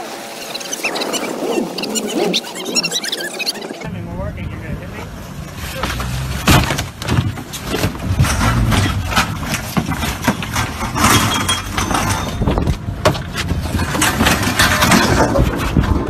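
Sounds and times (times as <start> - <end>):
water splashing: 0.0 - 3.8.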